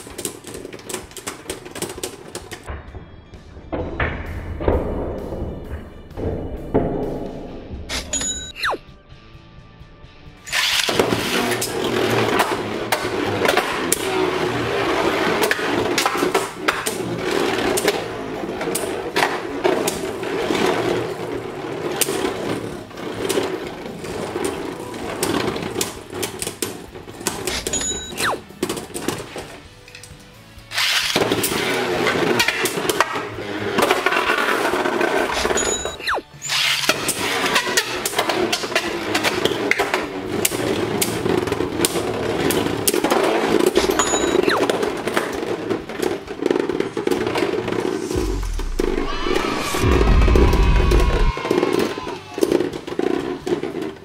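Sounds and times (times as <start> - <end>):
spinning tops grinding on plastic: 10.5 - 29.6, 30.7 - 48.2, 51.4 - 54.0.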